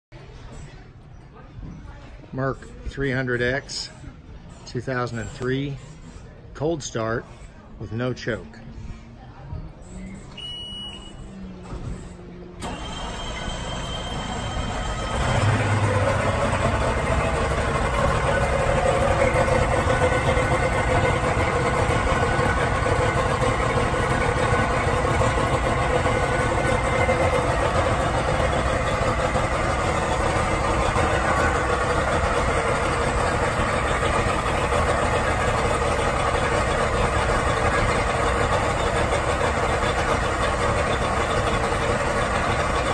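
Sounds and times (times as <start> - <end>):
outboard engine starting and running: 10.4 - 42.9.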